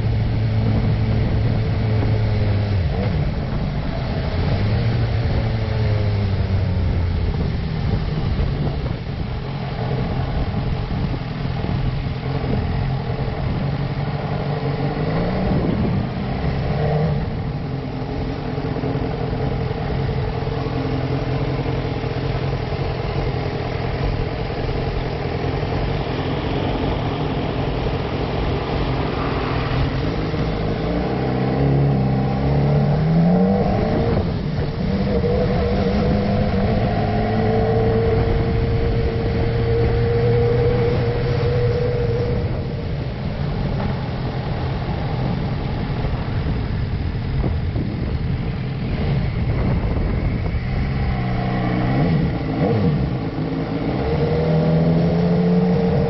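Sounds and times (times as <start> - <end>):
motorcycle engine running: 33.8 - 55.0.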